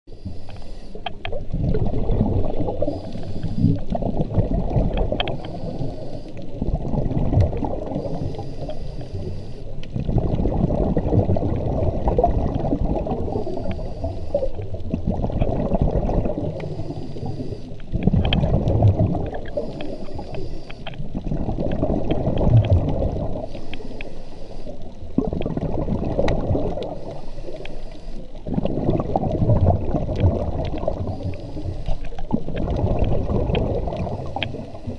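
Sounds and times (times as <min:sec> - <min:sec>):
regulator inhale hiss: 0:00.1 - 0:01.2, 0:02.8 - 0:03.9, 0:05.2 - 0:06.6, 0:07.9 - 0:10.0, 0:13.2 - 0:14.7, 0:16.4 - 0:17.9, 0:19.4 - 0:21.0, 0:23.4 - 0:25.0, 0:26.8 - 0:28.4, 0:30.9 - 0:32.2, 0:34.0 - 0:34.9
exhaled bubbles gurgling: 0:00.1 - 0:34.9.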